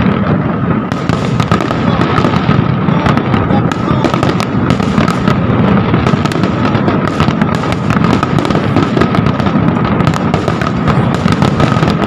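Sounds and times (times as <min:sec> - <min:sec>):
fireworks crackling and banging: 0:00.0 - 0:12.0.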